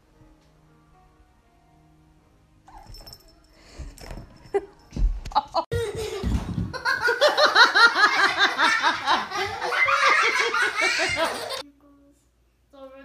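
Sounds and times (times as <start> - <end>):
person laughing hard: 5.3 - 11.6.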